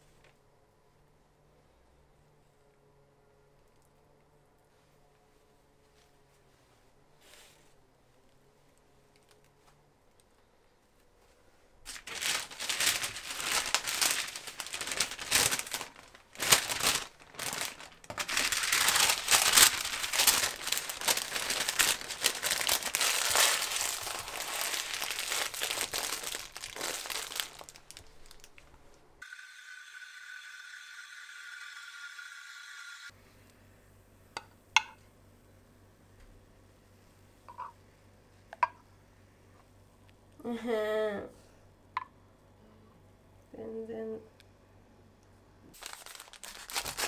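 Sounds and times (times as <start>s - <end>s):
paper crinkling: 11.9s - 29.0s, 45.7s - 47.0s
steam wand frothing milk: 29.2s - 33.1s.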